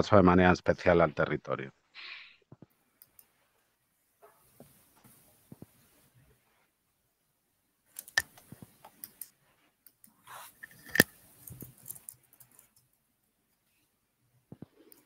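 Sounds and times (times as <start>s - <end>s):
sharp clicks and knocks: 8.0s - 9.3s.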